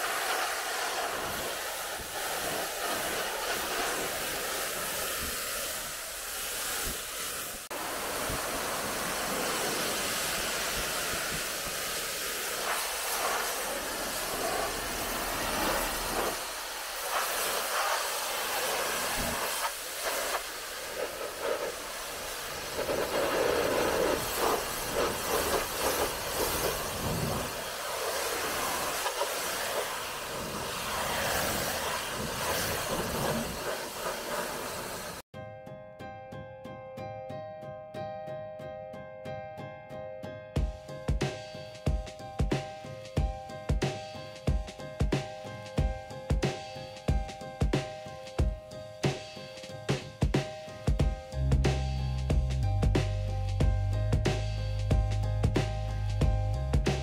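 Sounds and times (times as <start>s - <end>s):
pressure washer spray hissing: 0.0s - 35.2s.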